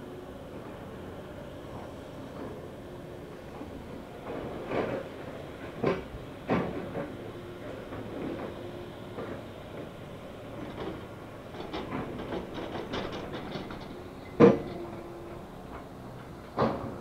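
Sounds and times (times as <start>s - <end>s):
machinery metal clanks and rattles: 3.6s - 10.0s, 10.6s - 17.0s.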